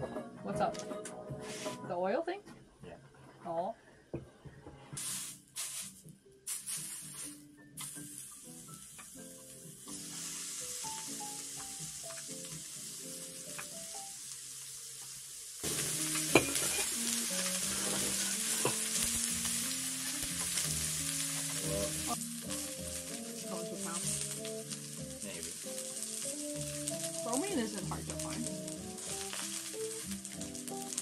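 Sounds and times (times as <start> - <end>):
meat sizzling on grill pan: 5.0 - 31.0
simple tune: 15.7 - 31.0.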